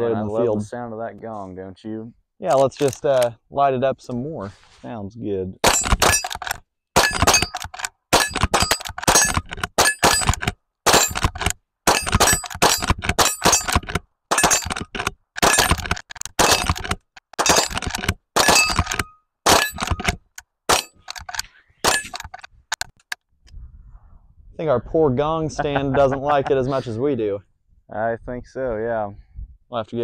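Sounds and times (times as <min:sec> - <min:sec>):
rifle shots: 0:05.6 - 0:06.4, 0:07.0 - 0:14.7.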